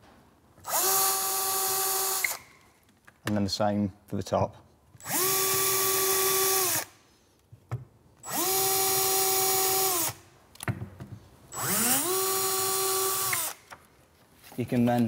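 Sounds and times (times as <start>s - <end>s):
cordless drill drilling: 0.6s - 2.5s, 5.0s - 7.0s, 8.2s - 10.2s, 11.5s - 13.7s.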